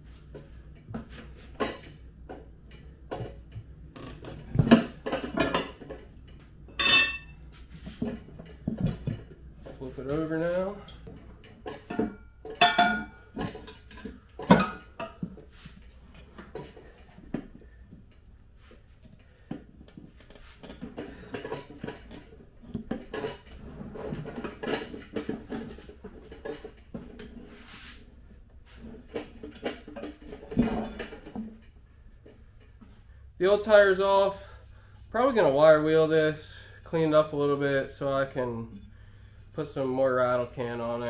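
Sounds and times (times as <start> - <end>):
metal clanks and knocks: 0.3 - 27.8, 28.7 - 33.0.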